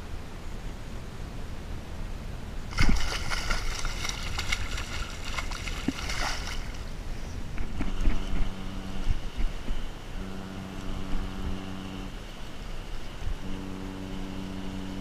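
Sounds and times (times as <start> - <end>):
wind rumble on microphone: 0.0 - 15.0
water splashing against a kayak: 2.7 - 6.9.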